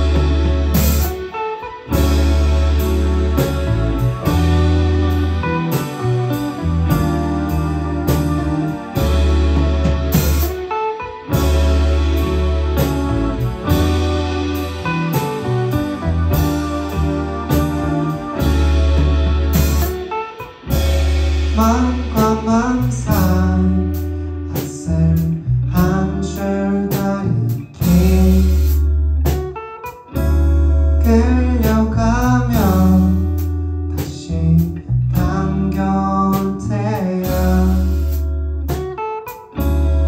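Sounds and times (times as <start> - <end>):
heavy electric bass line: 0.0 - 29.6, 30.2 - 40.0
live band playing pop song: 0.0 - 40.0
man singing: 21.5 - 28.8, 31.0 - 38.1.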